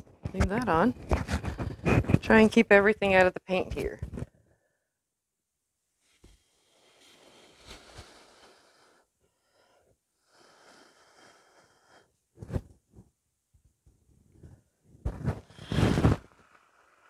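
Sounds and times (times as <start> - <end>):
person blowing breathily: 6.3 - 12.1, 15.4 - 17.0.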